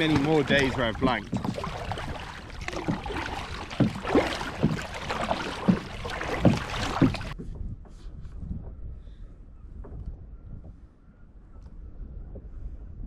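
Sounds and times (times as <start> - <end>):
paddle splashing in water: 0.0 - 7.4
water rushing along hull: 0.0 - 7.4.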